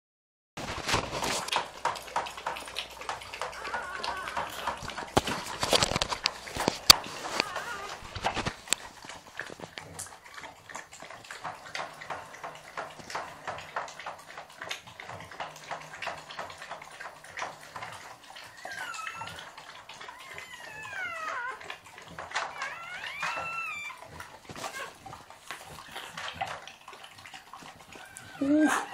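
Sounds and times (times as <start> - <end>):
dog licking wetly: 0.6 - 28.9
puppies squealing: 3.3 - 8.6, 18.4 - 25.0, 27.9 - 28.9.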